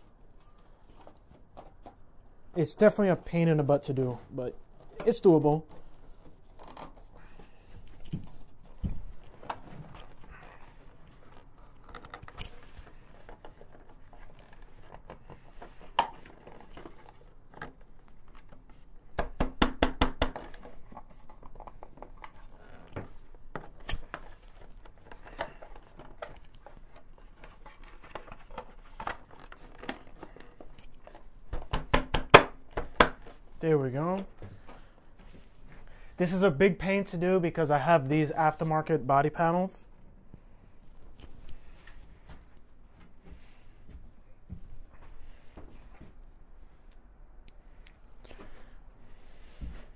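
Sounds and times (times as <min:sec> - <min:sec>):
plastic rubbing and clicking: 0:07.8 - 0:19.0, 0:20.2 - 0:33.5.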